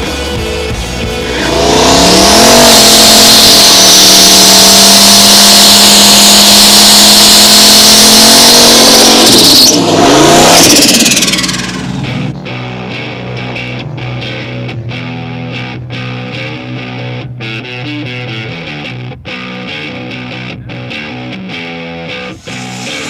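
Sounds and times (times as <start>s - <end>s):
engine revving: 0.0s - 17.0s, 22.2s - 23.0s.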